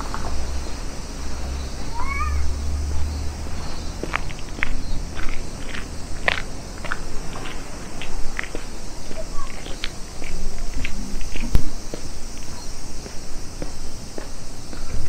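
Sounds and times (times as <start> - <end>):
steady low rumble: 0.0 - 15.0
footsteps crunching on stones: 3.6 - 15.0.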